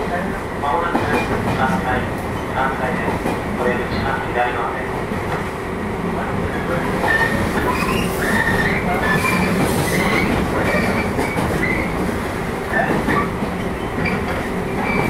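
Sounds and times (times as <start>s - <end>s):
train wheels rumbling on rail: 0.0s - 15.0s
high-pitched wheel squeaks: 7.0s - 12.0s, 12.7s - 15.0s.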